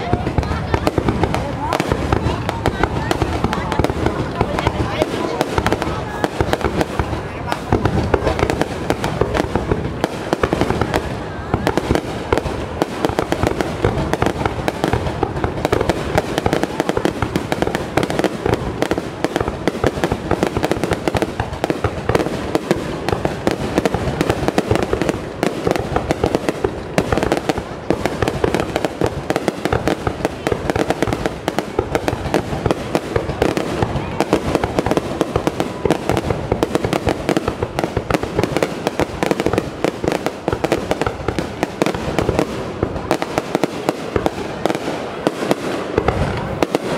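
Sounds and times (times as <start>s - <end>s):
fireworks bursting and crackling: 0.0s - 46.9s.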